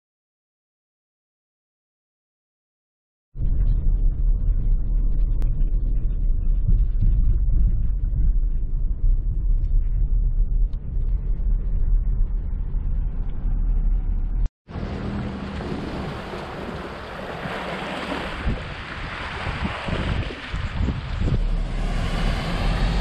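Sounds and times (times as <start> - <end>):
wind on microphone: 3.4 - 23.0
car interior road noise: 13.2 - 23.0
waves washing against rocky shore: 14.8 - 23.0.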